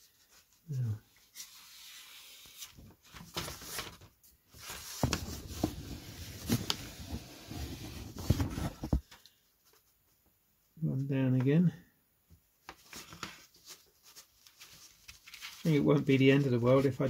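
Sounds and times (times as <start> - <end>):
tissue paper rustling: 1.3 - 8.9, 12.8 - 17.0.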